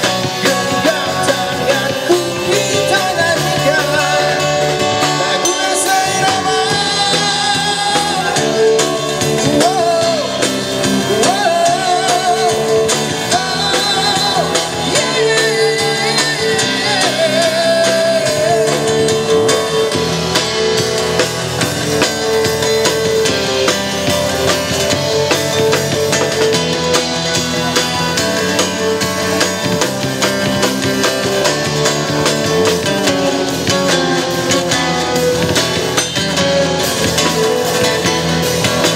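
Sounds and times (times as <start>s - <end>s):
man singing into a microphone: 0.0s - 19.9s
drum kit: 0.0s - 38.9s
electric bass: 0.0s - 38.9s
electric guitar: 0.0s - 38.9s.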